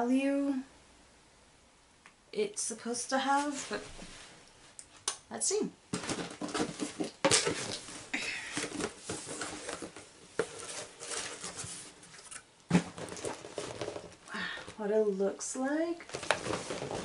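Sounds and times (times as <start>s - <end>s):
cardboard box being opened: 8.6s - 14.2s, 16.1s - 17.0s.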